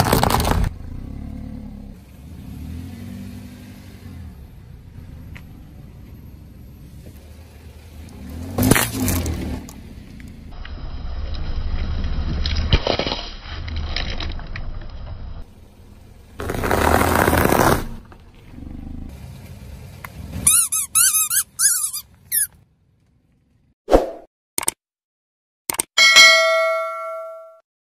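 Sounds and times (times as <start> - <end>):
burst of crushing noise: 0.0 - 0.8, 11.6 - 14.6
tyre crushing objects: 0.0 - 0.8, 16.4 - 18.1
squeaky toys squealing: 20.4 - 22.5.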